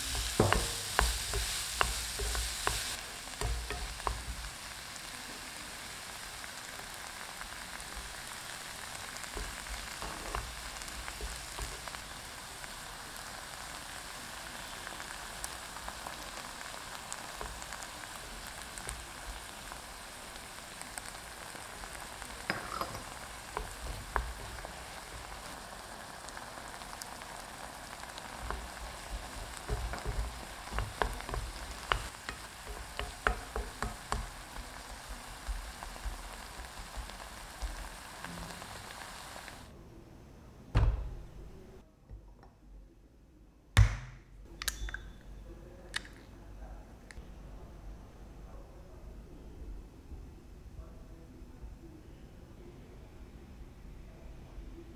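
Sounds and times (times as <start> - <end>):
wooden spoon knocking and scraping: 0.0 - 4.5, 22.4 - 24.7, 28.4 - 37.8
apples sizzling in a wok: 0.0 - 39.8.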